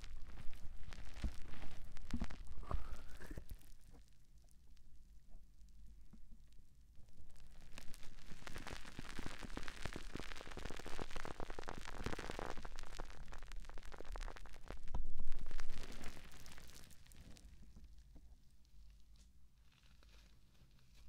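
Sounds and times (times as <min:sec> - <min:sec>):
sponge crackling on microphone: 0:00.0 - 0:03.7, 0:07.4 - 0:17.5.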